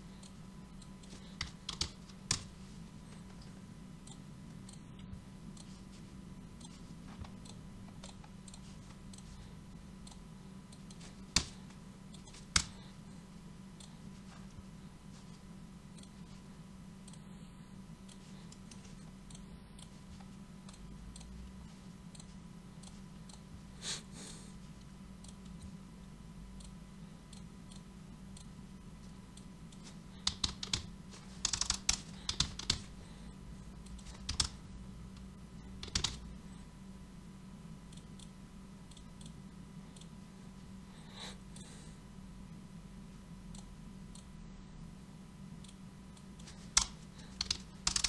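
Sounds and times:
steady low hum: 0:00.0 - 0:48.0
computer keyboard typing: 0:01.0 - 0:02.7, 0:10.9 - 0:12.9, 0:29.8 - 0:33.1, 0:33.9 - 0:34.7, 0:35.6 - 0:36.4, 0:46.4 - 0:48.0.

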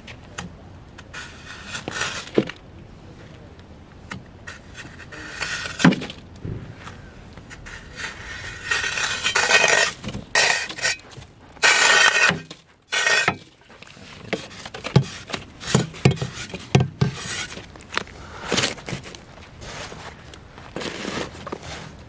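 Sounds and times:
shovel scraping snow: 0:01.1 - 0:02.4, 0:07.6 - 0:13.4, 0:14.0 - 0:17.7, 0:18.4 - 0:22.0.

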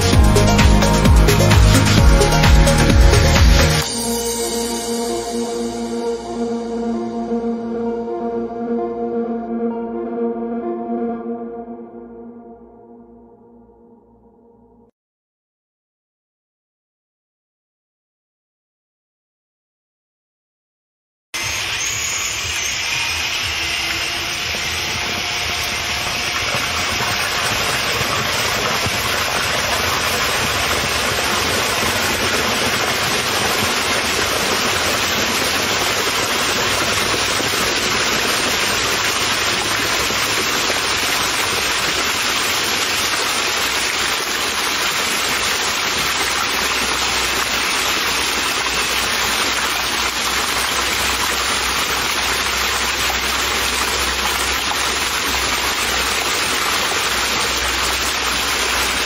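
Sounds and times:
water jets rushing and splashing: 0:00.0 - 0:04.1, 0:21.4 - 0:59.0.

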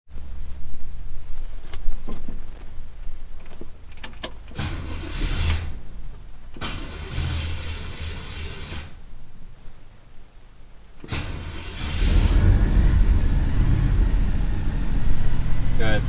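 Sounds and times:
car engine cranking on starter: 0:04.0 - 0:05.8, 0:06.5 - 0:09.0, 0:11.0 - 0:16.0.

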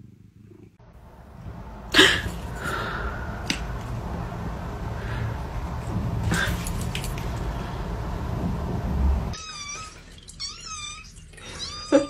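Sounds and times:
steady background noise: 0:00.8 - 0:09.4.

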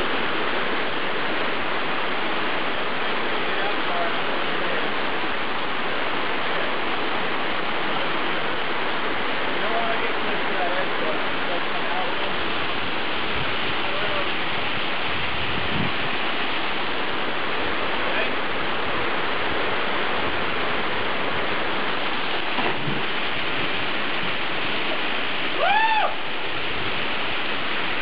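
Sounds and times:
waterfall rushing: 0:00.0 - 0:28.0
person shouting: 0:25.6 - 0:26.2.

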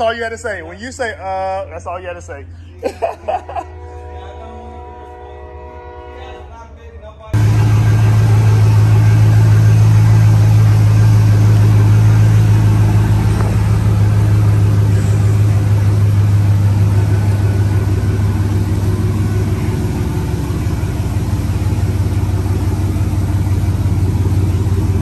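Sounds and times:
truck engine deep drone: 0:07.3 - 0:25.0.

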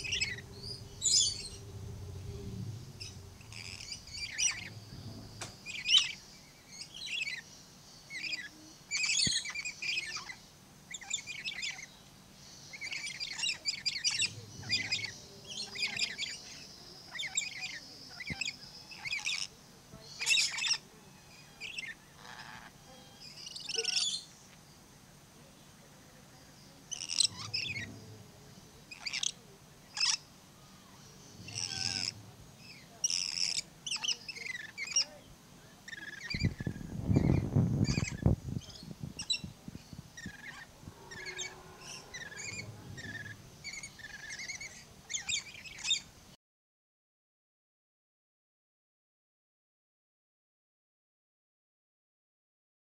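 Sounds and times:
low noisy rush: 0:00.0 - 0:08.9, 0:09.5 - 0:22.2, 0:24.2 - 0:46.4
birds chirping and squawking: 0:00.0 - 0:24.4, 0:26.6 - 0:46.2.

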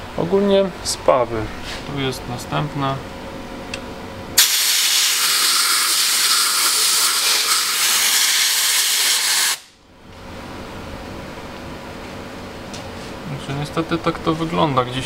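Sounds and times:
compressed air blow gun hissing: 0:04.4 - 0:09.7.

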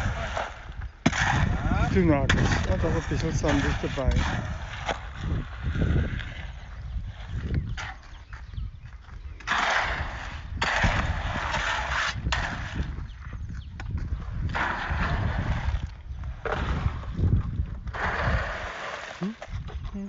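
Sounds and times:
hoe scraping wet concrete: 0:00.0 - 0:20.0.

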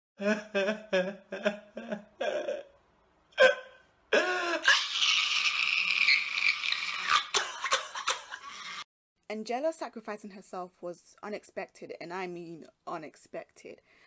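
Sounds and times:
man sobbing and wailing: 0:00.2 - 0:02.7, 0:03.4 - 0:05.8.

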